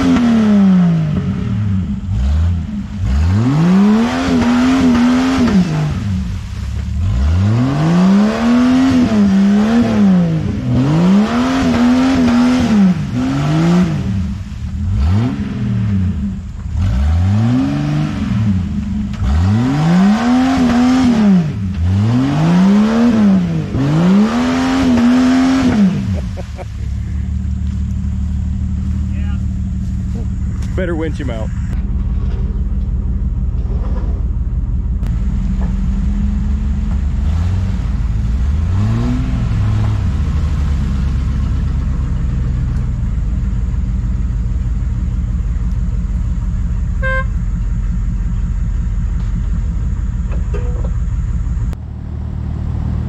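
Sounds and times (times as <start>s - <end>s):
engine revving hard: 0.0s - 6.4s, 7.0s - 27.0s, 37.2s - 41.9s
engine idling: 5.9s - 7.2s, 14.1s - 17.1s, 26.0s - 53.0s.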